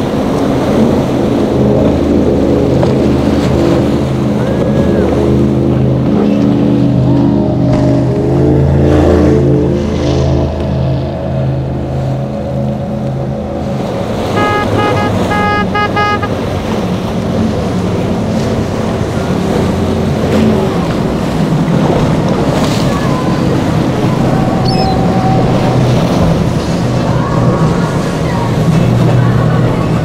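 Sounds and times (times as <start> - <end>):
outboard motors passing at speed: 0.0 - 30.0
powerboat engines running hard: 0.0 - 30.0
horn short blasts: 14.3 - 16.6.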